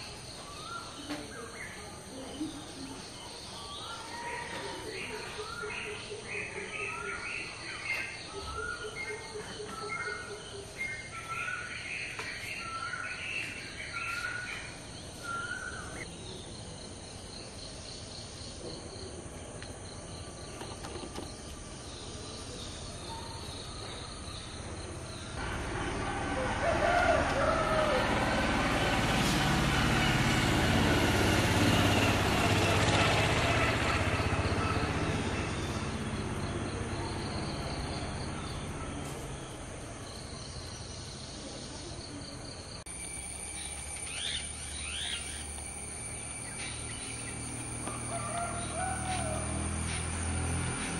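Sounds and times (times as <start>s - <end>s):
vehicle passing: 25.0s - 41.2s, 43.2s - 50.9s
warbling bird calls: 43.5s - 50.1s.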